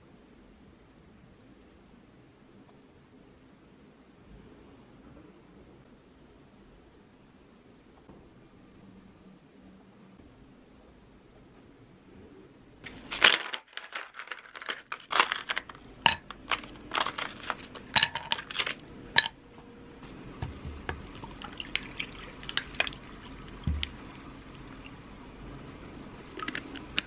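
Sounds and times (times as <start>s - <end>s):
coffee pouring over ice: 12.9s - 18.8s, 21.1s - 25.0s
ice cubes clinking in glass: 12.9s - 19.4s.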